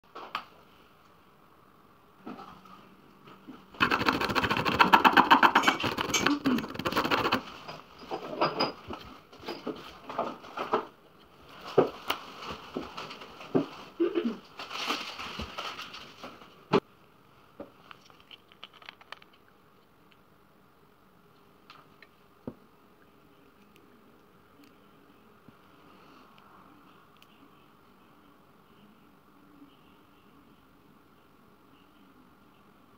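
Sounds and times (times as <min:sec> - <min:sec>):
rapid rasping clicks: 0:03.8 - 0:07.5.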